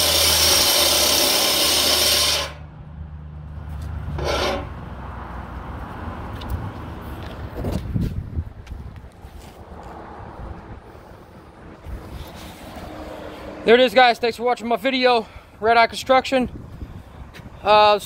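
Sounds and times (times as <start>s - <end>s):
angle grinder grinding metal: 0.0s - 2.6s, 4.2s - 4.7s
grinder motor winding down: 0.0s - 2.6s
grinder scraping on plate: 0.0s - 2.6s, 4.2s - 4.8s.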